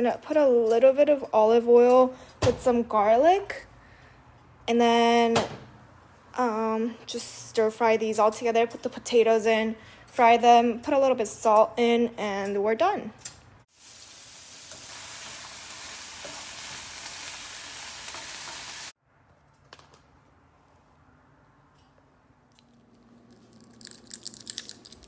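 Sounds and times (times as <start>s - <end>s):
stir-fry sizzling in oil: 13.7s - 19.0s.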